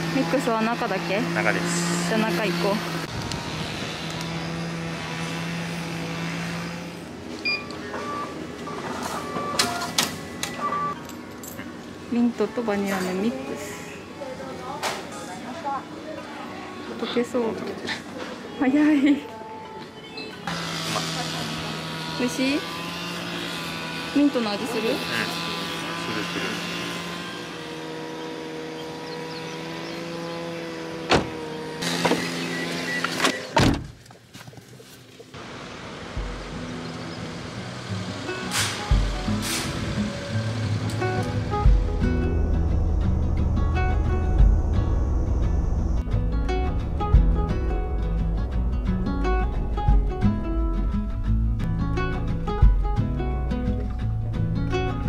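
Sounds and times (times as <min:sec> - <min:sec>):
faint beeping tones: 0:07.5 - 0:11.0
van engine running: 0:35.4 - 0:55.0
machine hum: 0:40.0 - 0:55.0.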